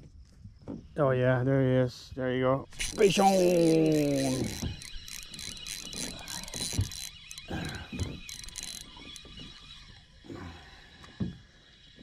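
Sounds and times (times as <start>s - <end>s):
fishing reel ratcheting clicks: 2.7s - 10.1s.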